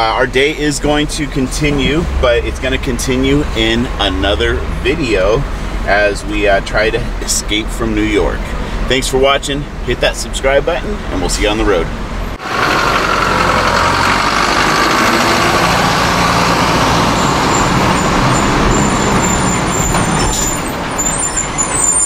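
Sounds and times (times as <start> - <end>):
city street traffic: 0.0 - 22.0
truck engine running: 10.8 - 22.0.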